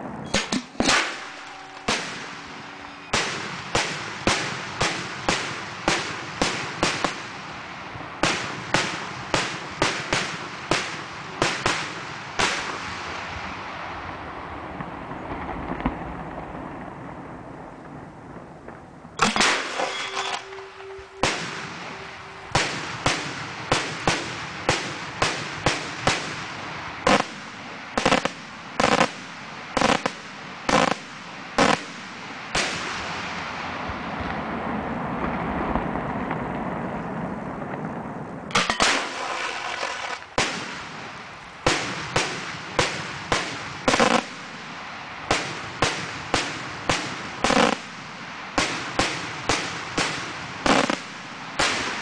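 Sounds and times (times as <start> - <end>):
firework shells banging: 0.2 - 7.4, 19.2 - 32.0, 38.5 - 40.8, 41.6 - 44.6, 45.3 - 47.9, 48.6 - 52.0.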